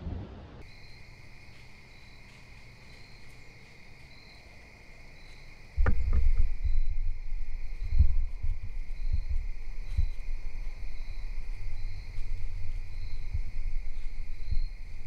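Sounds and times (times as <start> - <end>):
low rumble on microphone: 0.0 - 0.6, 5.8 - 15.0
crickets trilling: 0.6 - 15.0.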